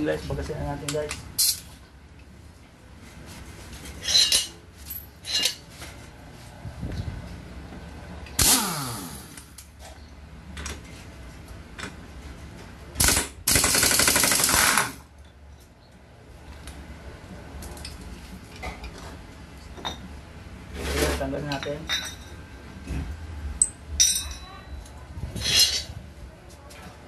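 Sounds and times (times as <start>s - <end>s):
impact wrench bursts: 8.4s - 9.6s, 13.0s - 15.0s.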